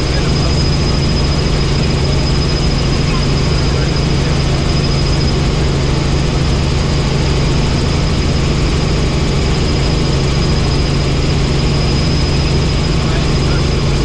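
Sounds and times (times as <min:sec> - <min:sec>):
helicopter engine and rotor drone: 0:00.0 - 0:14.0
high whine: 0:00.0 - 0:14.0.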